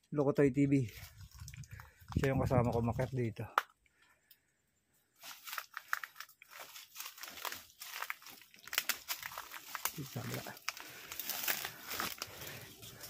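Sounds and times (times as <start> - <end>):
footsteps on dry leaves: 5.2 - 13.0.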